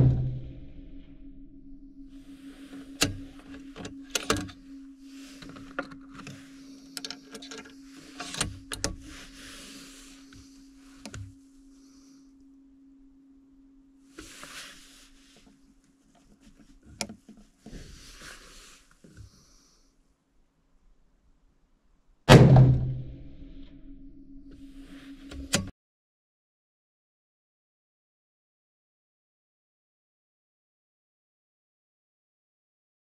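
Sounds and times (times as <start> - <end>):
steady low hum: 0.0 - 25.7.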